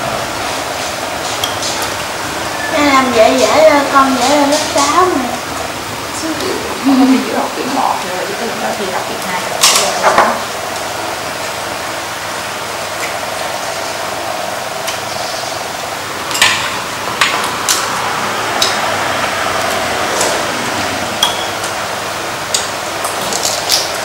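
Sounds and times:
steady background hum: 0.0 - 24.0
utensils clinking against bowls: 0.8 - 5.2, 6.4 - 10.5, 21.2 - 21.8.

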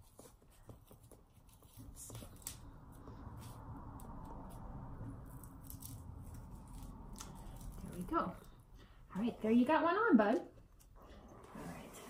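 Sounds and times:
low background hum: 0.0 - 12.0
velcro strap ripping: 5.2 - 8.1.

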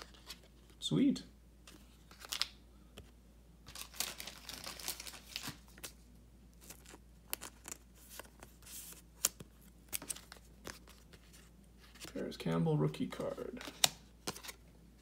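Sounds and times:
plastic sleeve crinkling: 3.7 - 6.0.

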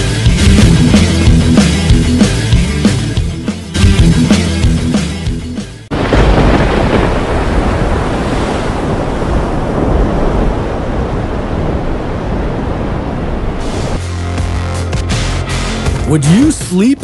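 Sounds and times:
deep rumble: 0.0 - 3.4, 5.9 - 16.1.

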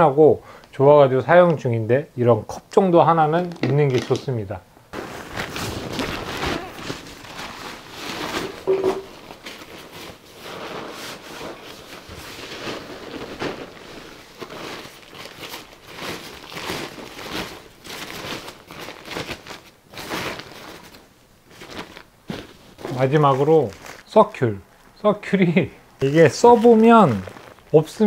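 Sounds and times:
bags and fabric rustling: 4.9 - 25.0, 26.0 - 28.0.

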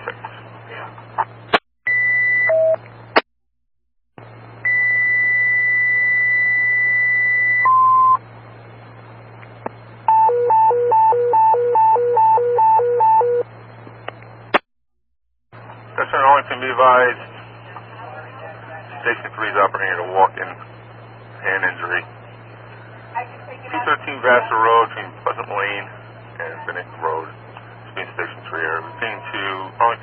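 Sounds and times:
radio hiss and hum: 0.0 - 1.6, 8.1 - 10.1, 15.6 - 30.0.

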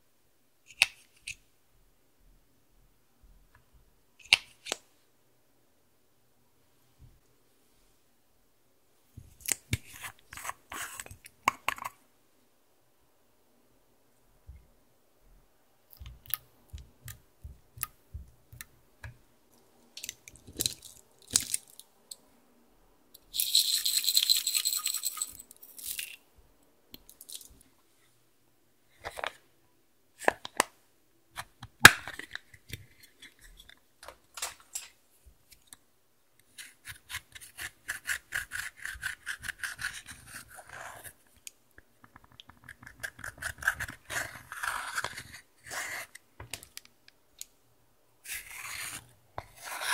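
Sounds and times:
tool scraping eyeshadow: 48.3 - 49.9.

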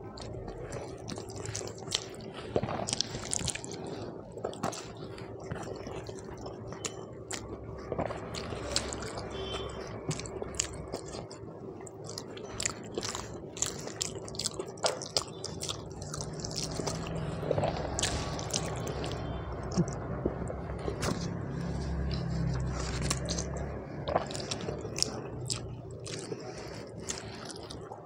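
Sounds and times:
close chewing with mouth smacks: 0.0 - 28.0
fingers squishing rice: 11.9 - 28.0.

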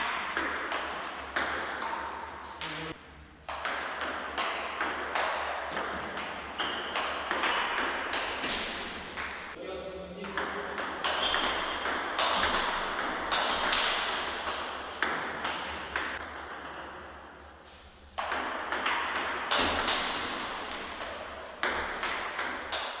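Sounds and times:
table tennis ball hitting paddles: 0.0 - 2.8, 3.5 - 9.6, 10.2 - 17.2, 18.2 - 23.0
ball bouncing on table: 10.2 - 16.9, 18.2 - 23.0.

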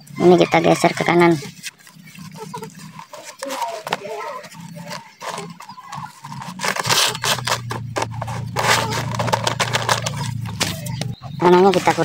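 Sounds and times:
low steady hum: 0.0 - 12.0
fingers scraping soil in plastic bag: 0.7 - 12.0.

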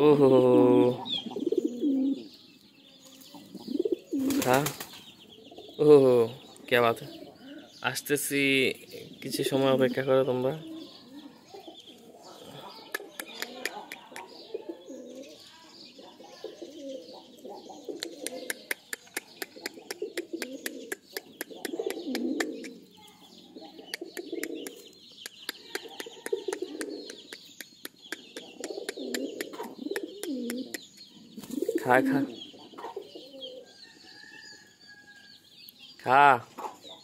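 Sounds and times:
pigeons cooing: 0.0 - 2.4, 3.1 - 34.8
sharp taps and clicks: 12.9 - 14.4, 18.0 - 22.8, 23.9 - 31.1.

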